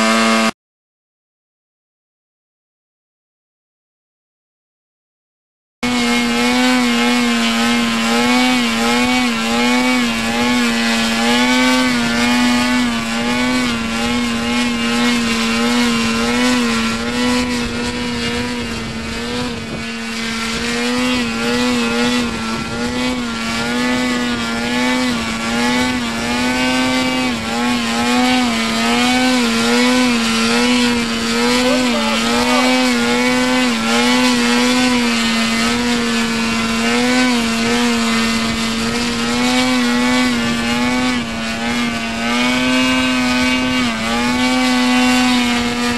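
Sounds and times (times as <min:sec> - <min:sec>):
drone ducted fan hovering: 0:05.8 - 0:45.9
wind rumbling on microphone: 0:07.2 - 0:36.8.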